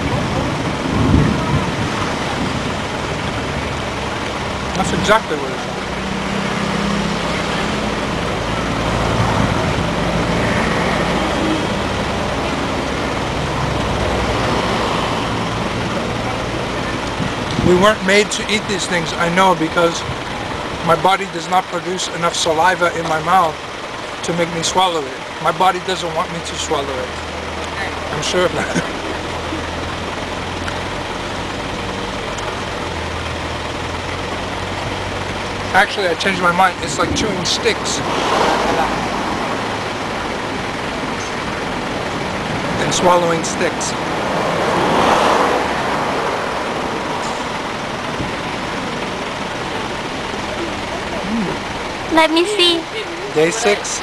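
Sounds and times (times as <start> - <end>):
road traffic noise: 0.0 - 54.0
vehicle engine humming: 0.0 - 54.0.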